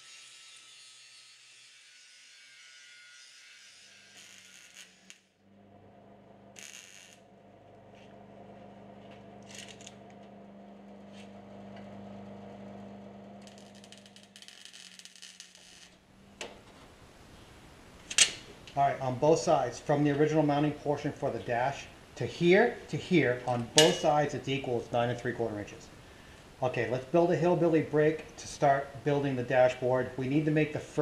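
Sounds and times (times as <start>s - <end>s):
welder low hum: 3.8s - 18.0s
welder crackling bursts: 4.1s - 5.3s, 6.4s - 7.4s, 8.0s - 16.1s.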